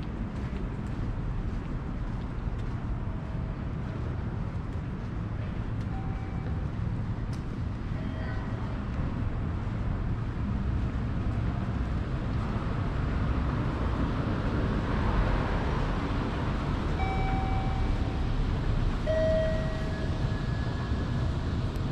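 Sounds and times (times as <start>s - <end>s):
city street traffic rumble: 0.0s - 21.9s
faint steady tones: 19.0s - 21.0s.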